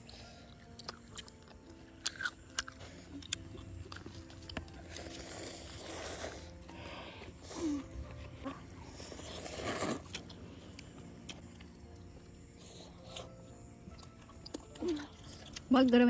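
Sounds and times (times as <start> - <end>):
slurping noodles: 4.9 - 6.6, 8.9 - 10.3.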